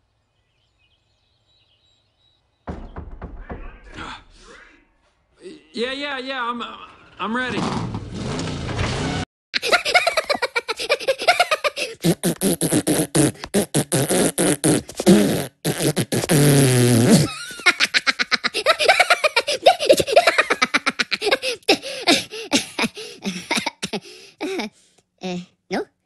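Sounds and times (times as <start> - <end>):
beatbox clicks and pops: 12.0 - 17.0.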